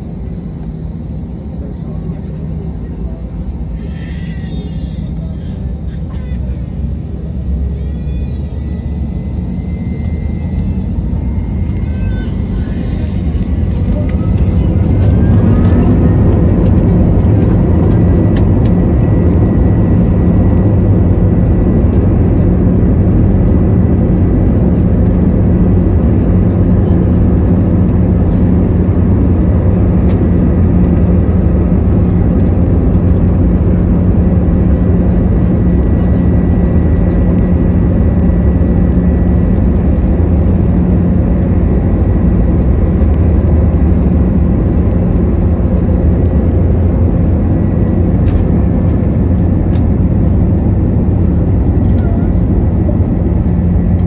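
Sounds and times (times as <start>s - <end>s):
faint high engine whine: 0.0s - 54.0s
jet engines roaring: 0.0s - 54.0s.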